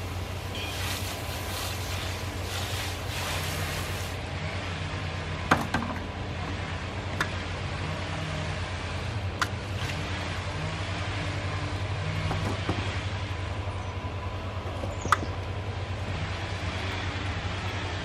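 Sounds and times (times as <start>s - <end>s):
hose nozzle spraying water: 0.0s - 4.2s.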